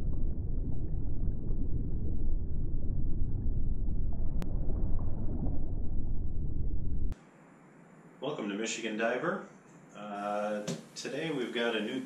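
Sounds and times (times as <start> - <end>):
deep underwater rumble: 0.0 - 7.2.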